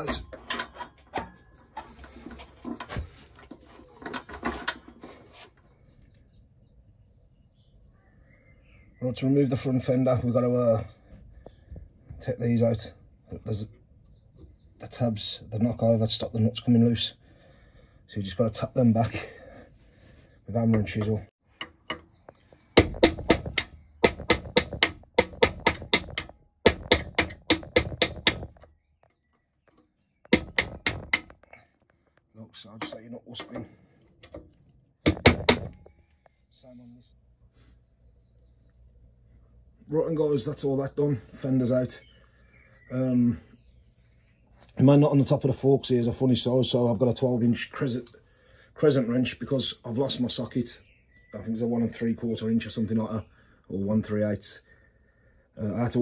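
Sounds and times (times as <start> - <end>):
metallic clicks and knocks: 0.0 - 5.0, 22.8 - 29.1, 29.7 - 31.6
hammer tapping metal chisel: 22.8 - 28.7, 29.7 - 31.5.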